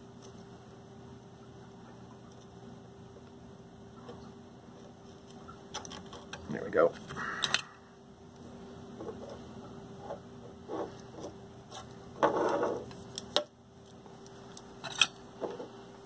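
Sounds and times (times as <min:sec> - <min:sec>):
faint steady hum: 0:00.0 - 0:16.0
scraping rustle on bench: 0:09.0 - 0:13.2.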